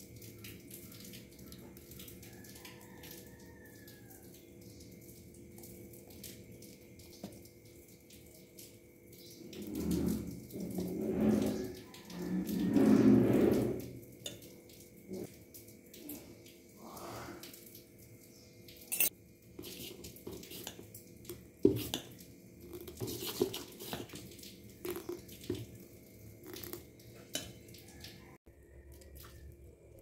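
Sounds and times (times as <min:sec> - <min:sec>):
spoon clinking against bowl: 0:18.9 - 0:20.8
spoon stirring wet batter: 0:18.9 - 0:30.0.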